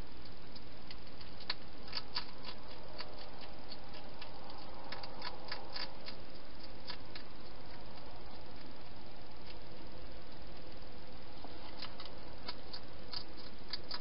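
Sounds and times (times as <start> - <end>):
steady hiss: 0.0 - 14.0
hedgehog chewing clicks: 0.2 - 8.7, 11.4 - 14.0.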